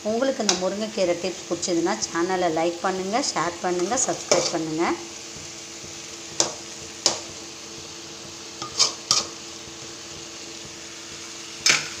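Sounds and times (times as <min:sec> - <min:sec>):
metal ladle clinking on pan: 0:08.6 - 0:09.3.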